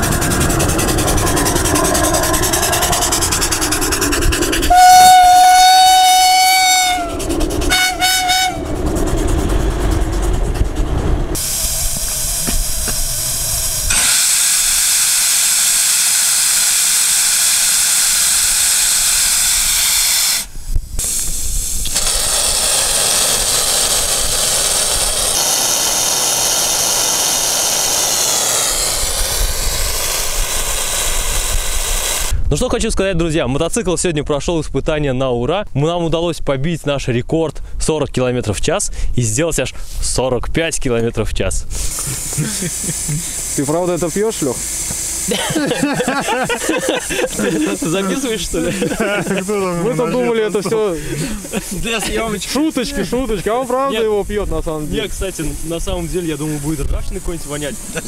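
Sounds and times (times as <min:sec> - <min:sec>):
steam engine running: 0:00.0 - 0:32.4, 0:41.7 - 0:58.0
steam hissing from valve: 0:00.0 - 0:32.4, 0:41.6 - 0:58.0
steam whistle blowing: 0:04.6 - 0:08.8, 0:11.4 - 0:21.3.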